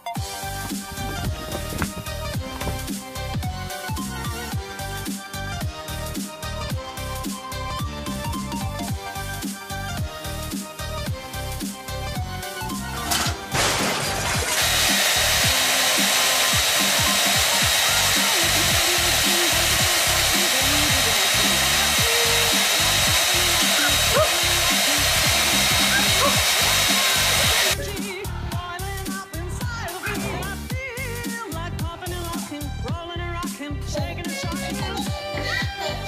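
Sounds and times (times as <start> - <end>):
background music: 0.0 - 36.0
small electric motor rushing: 14.1 - 27.8.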